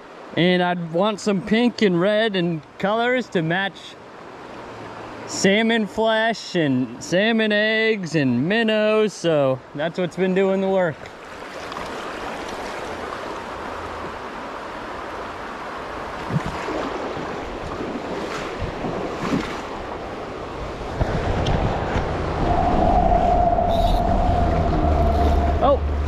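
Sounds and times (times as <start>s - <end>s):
wind buffeting microphone: 16.1s - 26.0s.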